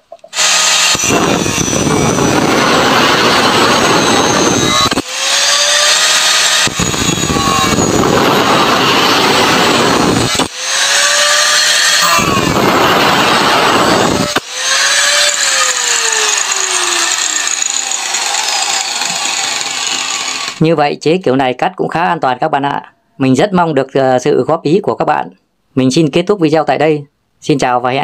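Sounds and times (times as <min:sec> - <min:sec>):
angle grinder whining: 0:00.3 - 0:20.6
grinder cutting metal rod: 0:00.3 - 0:20.6.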